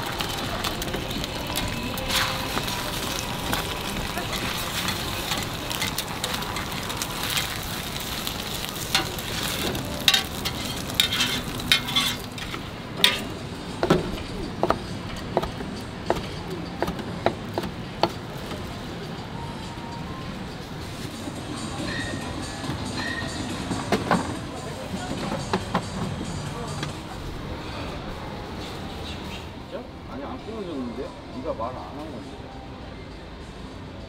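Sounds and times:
egg sizzling on a griddle: 0.0s - 13.2s.

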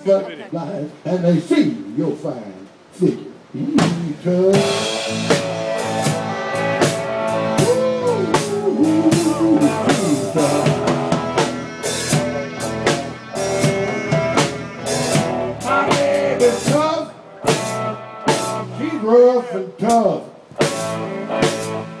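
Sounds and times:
drum kit steady beat: 4.6s - 18.8s, 20.6s - 22.0s
electric guitar chords: 4.6s - 19.1s, 20.6s - 22.0s
clarinet melody: 5.3s - 18.8s.

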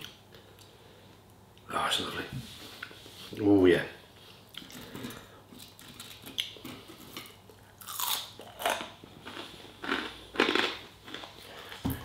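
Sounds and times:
person chewing crunchy food: 4.5s - 12.0s.

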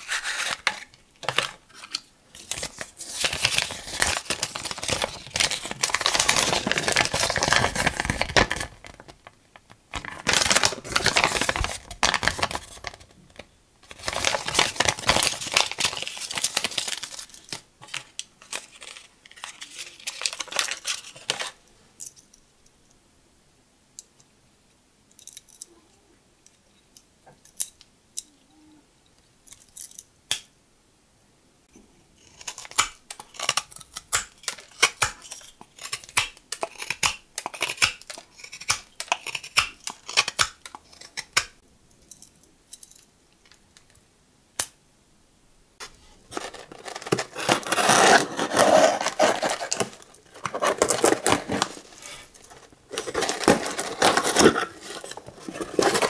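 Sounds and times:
cardboard and paper rustling: 0.0s - 9.2s, 45.8s - 56.0s.

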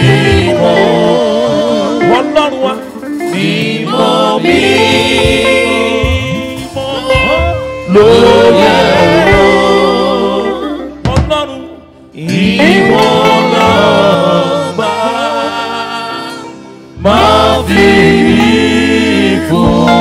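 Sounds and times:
band playing: 0.0s - 20.0s
men singing gospel: 0.0s - 20.0s.

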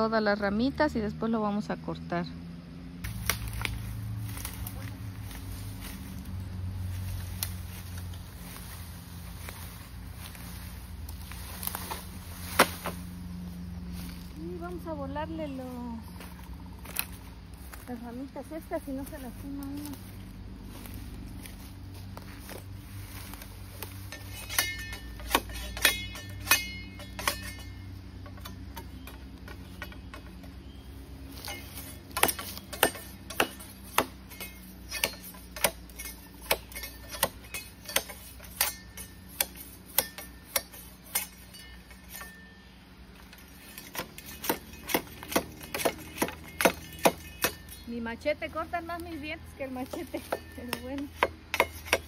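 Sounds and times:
machete chopping bamboo: 3.0s - 6.3s, 6.9s - 13.4s, 21.4s - 30.6s, 31.2s - 47.9s, 49.6s - 52.0s.

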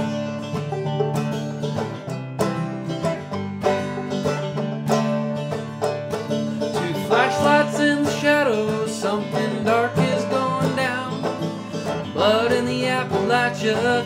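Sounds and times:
acoustic guitar: 0.0s - 14.0s
banjo picking: 0.0s - 14.0s
man singing: 6.7s - 11.4s, 12.0s - 14.0s.

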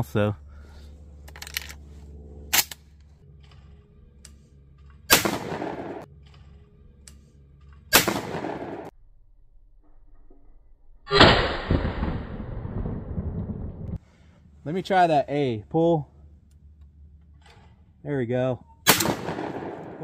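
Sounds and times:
shotgun blasts: 5.1s - 6.1s, 7.9s - 8.9s, 11.1s - 12.5s, 18.8s - 20.0s.

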